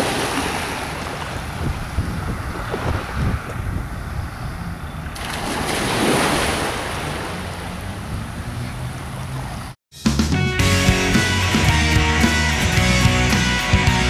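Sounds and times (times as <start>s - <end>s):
sea surf washing in: 0.0s - 3.6s, 5.2s - 9.6s
wind: 0.0s - 9.8s
music: 9.9s - 14.0s.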